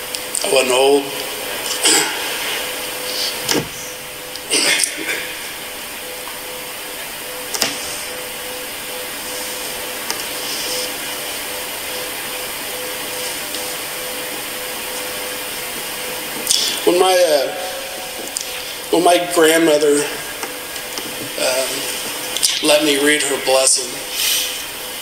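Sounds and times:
faint hum: 0:00.0 - 0:25.0
steady hiss: 0:00.0 - 0:25.0
thump: 0:03.5 - 0:03.8.

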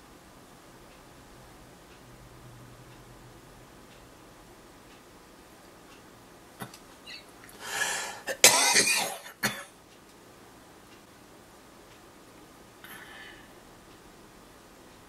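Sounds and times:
man breathing: 0:07.5 - 0:08.3, 0:12.8 - 0:13.6
man coughing: 0:08.2 - 0:09.7.

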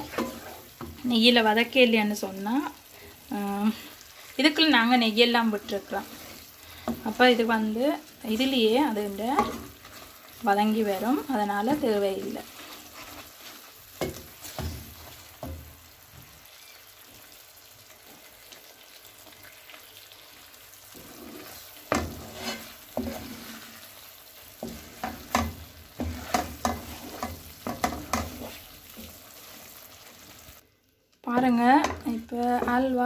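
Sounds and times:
wooden spoon scraping a pan: 0:00.0 - 0:02.2, 0:03.6 - 0:15.7, 0:20.8 - 0:30.6, 0:31.4 - 0:33.0
mixture sizzling softly: 0:00.0 - 0:31.3.

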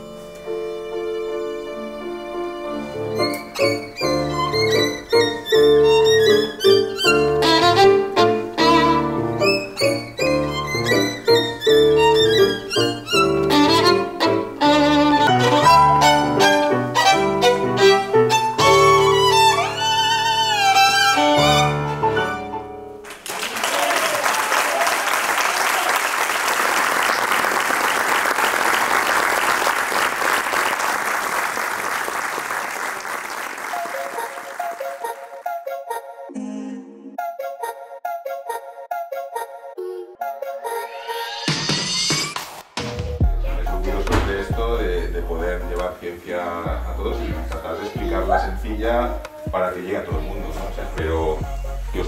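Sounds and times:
violin: 0:00.0 - 0:22.9
digital piano: 0:02.9 - 0:23.0
audience applause: 0:23.0 - 0:35.4.

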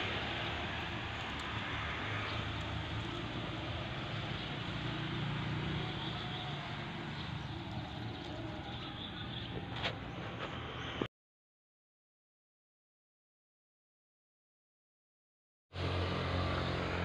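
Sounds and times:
road traffic noise: 0:00.0 - 0:11.1, 0:15.8 - 0:17.0
vehicle engine hum: 0:00.0 - 0:11.1, 0:15.8 - 0:17.0.

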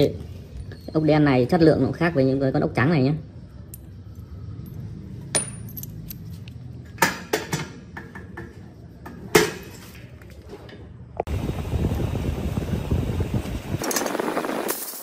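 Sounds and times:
bolts and nuts clinking: 0:03.6 - 0:07.8, 0:13.8 - 0:15.0.

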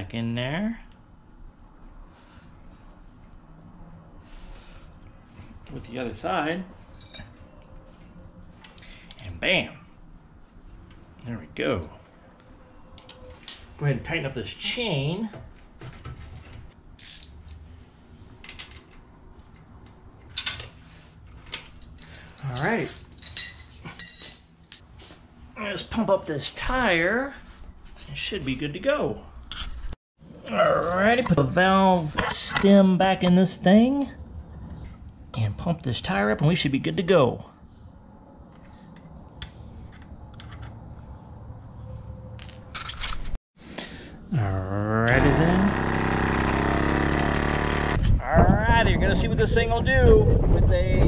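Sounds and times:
wrench clinking on metal: 0:21.5 - 0:24.8.

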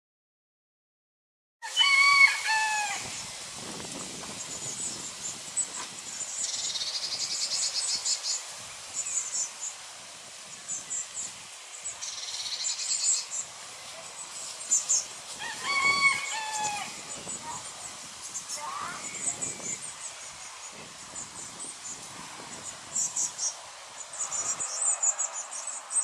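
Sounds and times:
rooster crowing: 0:01.6 - 0:03.2, 0:15.4 - 0:17.2
bird chirps and trills: 0:04.4 - 0:09.8, 0:10.5 - 0:13.5, 0:14.1 - 0:26.0.

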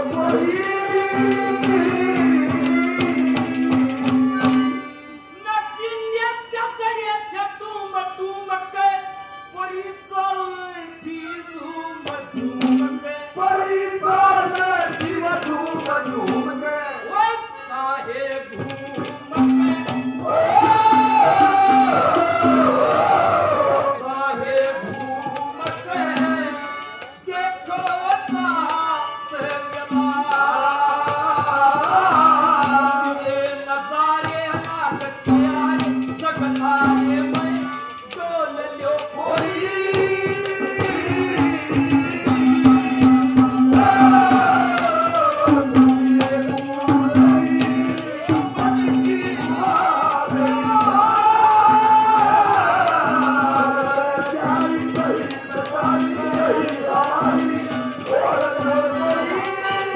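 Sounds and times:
man singing into a microphone: 0:00.0 - 0:59.9
drum strokes: 0:00.1 - 0:04.8, 0:18.6 - 0:23.8, 0:39.4 - 0:59.9.

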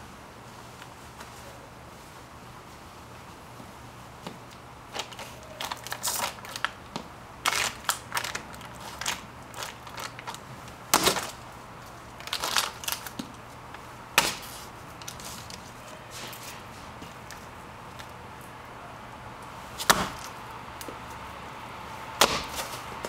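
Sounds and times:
plastic bottle being crushed: 0:05.0 - 0:06.8, 0:07.4 - 0:10.4, 0:11.0 - 0:11.4, 0:12.2 - 0:13.3.

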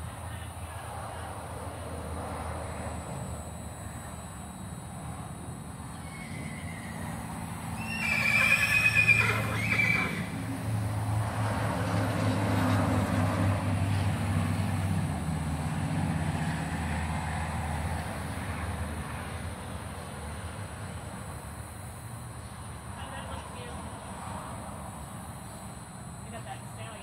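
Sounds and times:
horse whinny: 0:05.9 - 0:07.2, 0:07.8 - 0:10.4.

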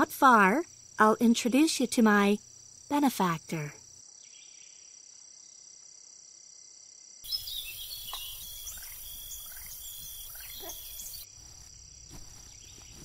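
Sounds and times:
crickets chirring: 0:00.0 - 0:13.0
soft outdoor hiss: 0:00.0 - 0:13.0
birdsong of short falling chirps: 0:07.3 - 0:11.2.

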